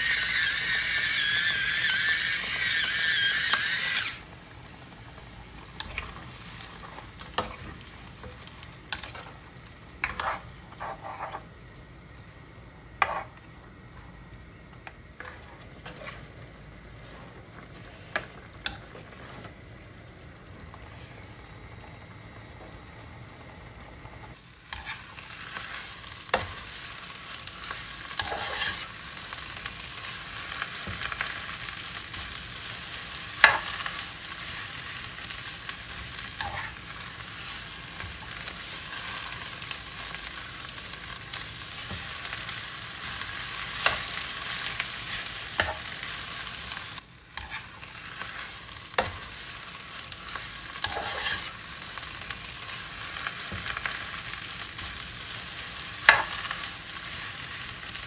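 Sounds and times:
soup sizzling and bubbling in a wok: 0.0s - 58.0s.

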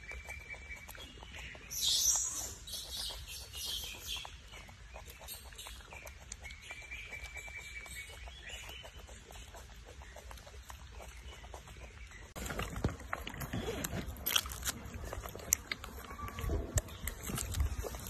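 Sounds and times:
birds chirping: 0.0s - 18.0s
baby monkey suckling clicks: 14.4s - 18.0s.

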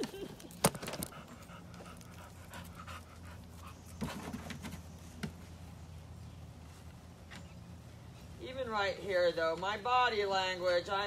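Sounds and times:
dog panting: 0.8s - 4.3s.

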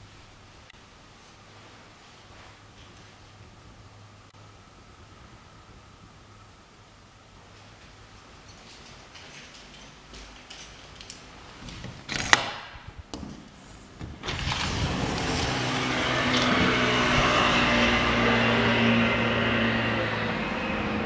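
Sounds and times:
road traffic: 13.6s - 21.0s
vehicle engine hum: 14.2s - 21.0s.

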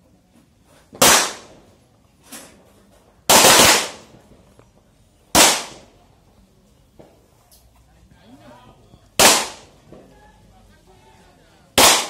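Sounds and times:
pistol shots: 1.0s - 1.6s, 3.3s - 4.1s, 5.3s - 5.9s, 9.2s - 9.8s, 11.8s - 12.0s.

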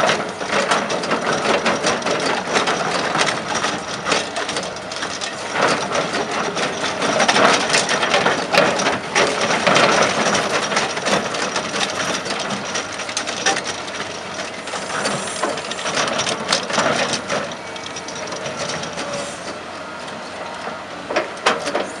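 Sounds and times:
hydraulic cutter grinding rock: 0.0s - 19.7s.

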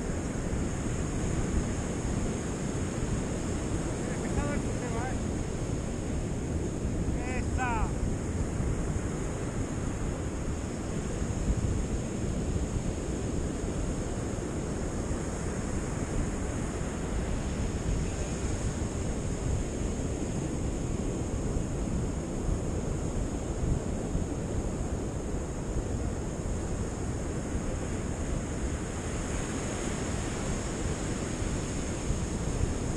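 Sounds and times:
wind buffeting microphone: 0.0s - 32.9s
ocean surf breaking: 2.8s - 6.0s, 6.7s - 8.4s.

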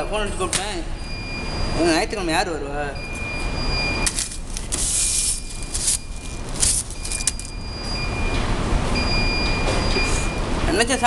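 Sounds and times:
gloved hands rustling: 4.2s - 7.5s.

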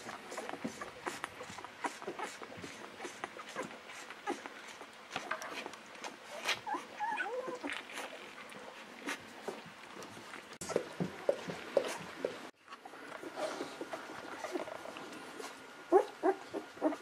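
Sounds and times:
puppy sucking from bottle: 0.1s - 9.7s
puppy whimpering squeaks: 6.3s - 7.8s.

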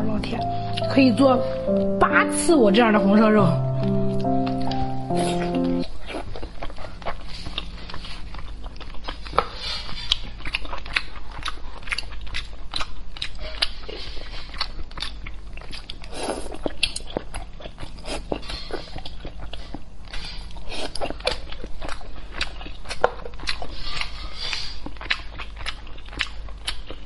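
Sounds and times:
mouth chewing with sticky clicks: 4.2s - 27.0s.

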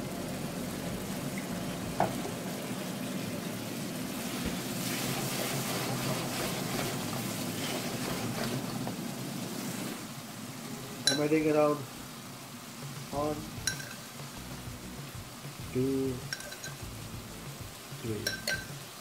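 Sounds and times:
sauce sizzling and bubbling: 0.0s - 19.0s
spatula scraping and stirring: 4.8s - 9.0s.

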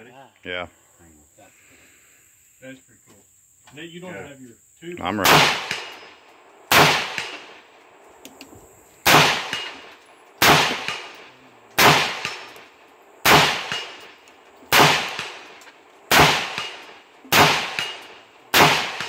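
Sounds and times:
rifle gunshots with echo: 5.2s - 7.7s, 9.0s - 19.0s
bullets ringing on steel target: 16.3s - 18.2s.

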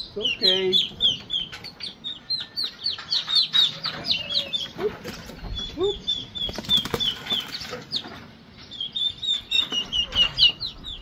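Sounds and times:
young turkeys peeping: 0.0s - 11.0s
wings flapping: 6.4s - 7.8s.

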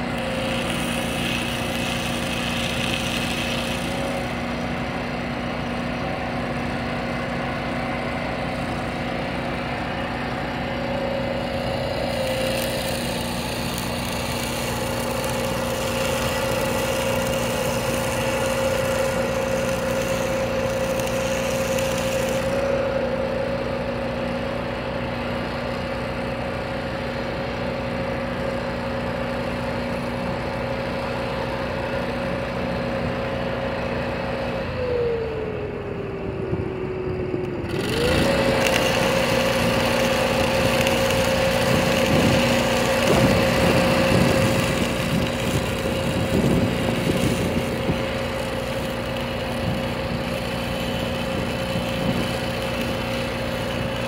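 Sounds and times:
welding arc crackling: 0.0s - 26.4s, 37.5s - 54.0s
tractor engine idling: 0.0s - 54.0s.

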